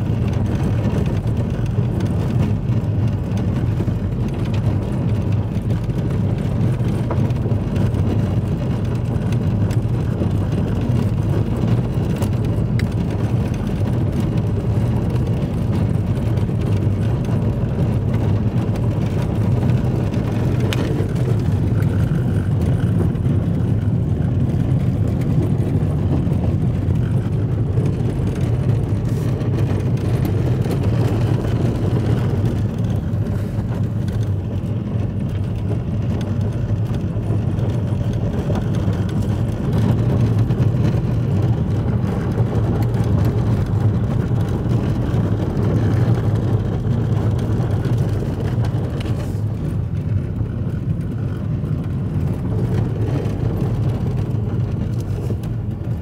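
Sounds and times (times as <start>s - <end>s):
car engine rumble: 0.0s - 56.0s
tyres on gravel: 0.1s - 55.9s.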